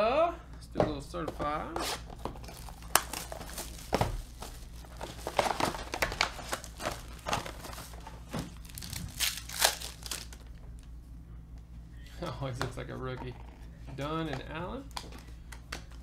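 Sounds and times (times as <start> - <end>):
foil and cardboard crinkling: 2.4 - 10.6.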